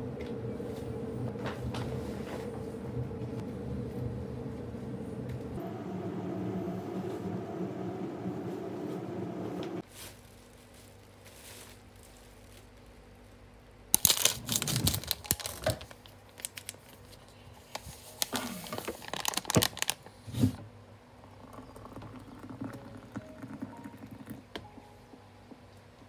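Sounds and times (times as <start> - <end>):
plastic sachet crinkling and tearing: 13.9 - 20.1.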